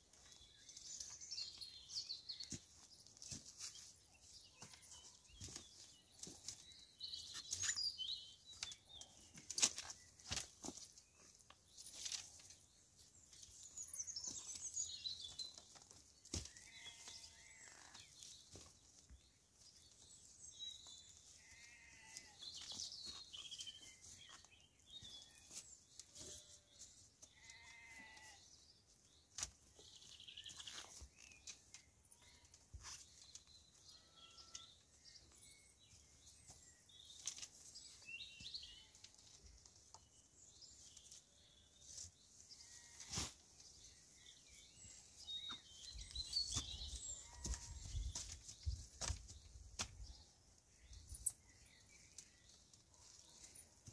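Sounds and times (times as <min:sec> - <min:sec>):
short bleat-like cries: 0:21.4 - 0:22.4, 0:27.4 - 0:28.4.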